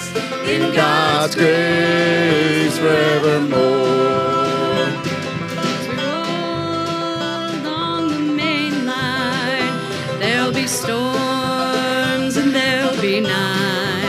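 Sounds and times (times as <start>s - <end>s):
harmonica warbling high notes: 0.0s - 8.5s
bluegrass band playing: 0.0s - 14.0s.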